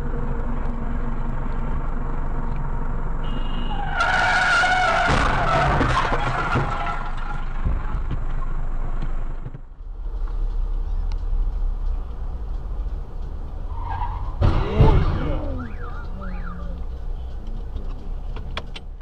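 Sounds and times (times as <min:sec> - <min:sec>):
car engine and road rumble: 0:00.0 - 0:19.0
tyre squeal: 0:03.2 - 0:07.7, 0:13.7 - 0:16.7
clattering crash impacts: 0:04.8 - 0:08.1, 0:14.4 - 0:15.3.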